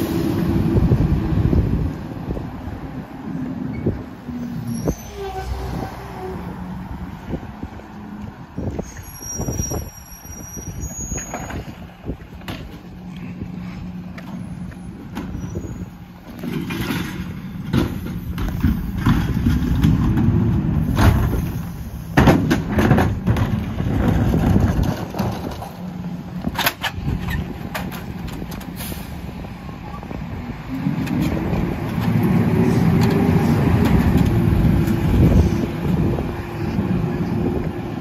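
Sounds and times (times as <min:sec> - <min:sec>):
high squeal: 0:03.7 - 0:06.5, 0:08.7 - 0:11.7, 0:15.3 - 0:16.0.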